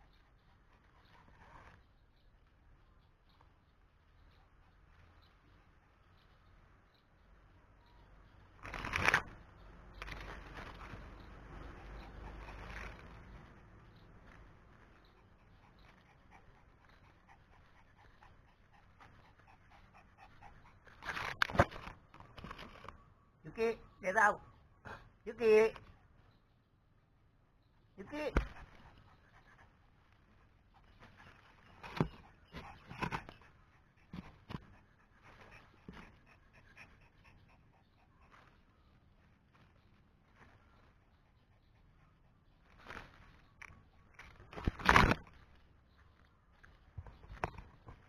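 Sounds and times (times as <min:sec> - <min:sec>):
rustling: 0:00.0 - 0:06.8, 0:08.3 - 0:23.0, 0:28.3 - 0:48.0
dog panting: 0:10.0 - 0:22.9, 0:28.0 - 0:44.8.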